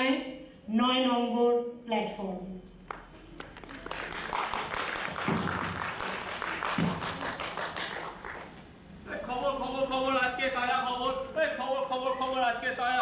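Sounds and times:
audience applauding: 2.9 - 8.6.

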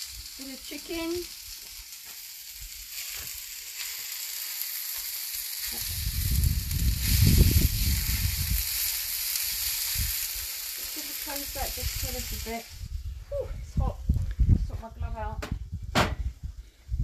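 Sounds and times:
chicken sizzling on griddle: 0.0 - 13.0
low rumble: 5.8 - 8.9.

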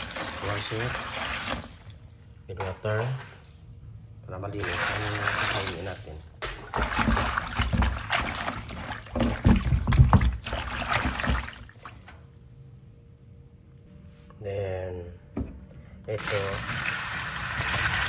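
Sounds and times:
water sloshing in plastic basin: 0.0 - 3.5, 4.5 - 12.4
faint steady hum: 1.5 - 17.2.

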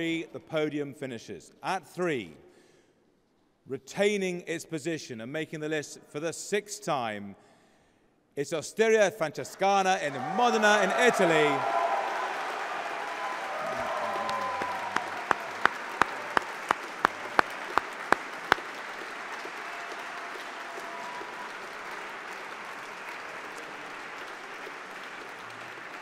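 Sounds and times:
audience applauding: 9.9 - 26.0
loud sharp claps close by: 10.1 - 26.0.

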